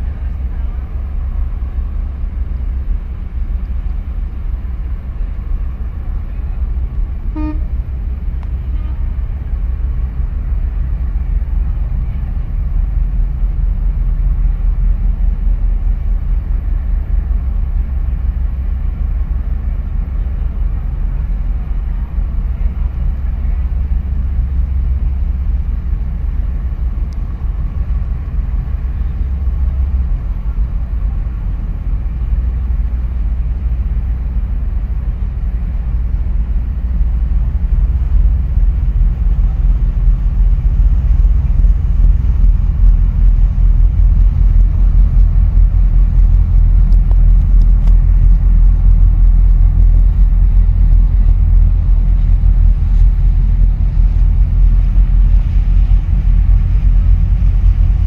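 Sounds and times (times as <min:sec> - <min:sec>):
steady low rumble: 0:00.0 - 0:58.0
short toot: 0:07.3 - 0:07.7.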